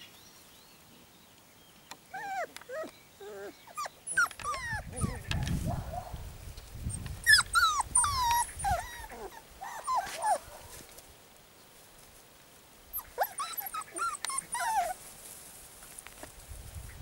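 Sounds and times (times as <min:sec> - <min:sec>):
puppies whining and yelping: 0:02.0 - 0:05.6, 0:06.9 - 0:10.4, 0:12.9 - 0:15.0.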